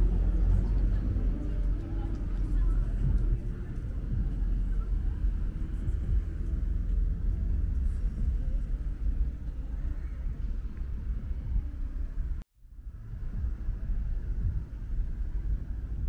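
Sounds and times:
road traffic: 0.0 - 16.0
wind buffeting microphone: 0.0 - 16.0.

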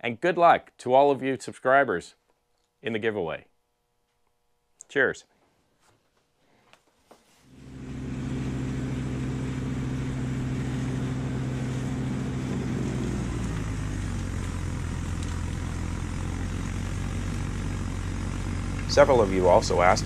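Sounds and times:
tractor diesel engine running: 7.5 - 20.0
snowblower throwing snow: 7.6 - 20.0.

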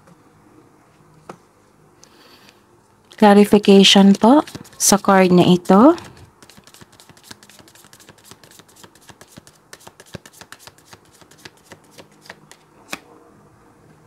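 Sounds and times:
cards shuffling: 4.1 - 13.0.

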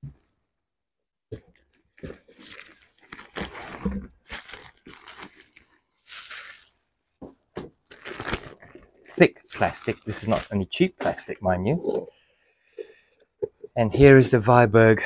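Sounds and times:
plastic bags crinkling: 2.0 - 6.8, 7.7 - 11.2.

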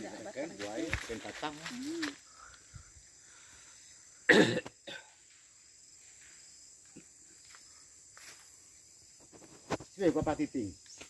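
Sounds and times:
person coughing: 4.3 - 5.1.

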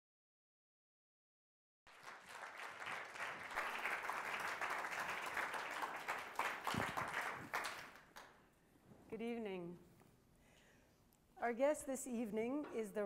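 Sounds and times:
audience applauding: 1.9 - 8.4.

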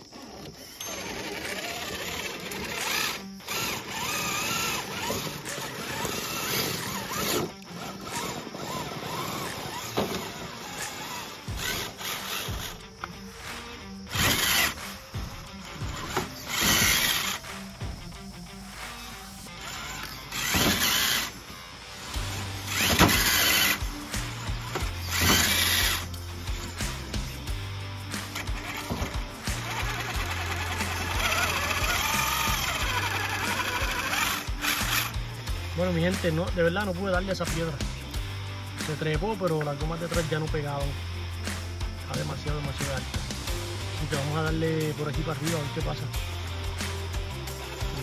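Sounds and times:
small electric motor whining: 0.0 - 35.7
background music with bass line: 2.7 - 48.0.

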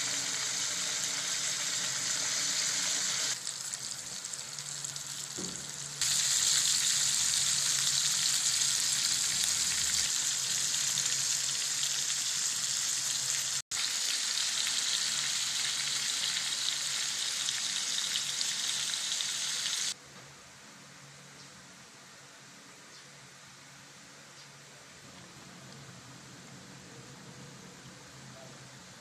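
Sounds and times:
hot oil sizzling in a wok: 0.0 - 20.0.

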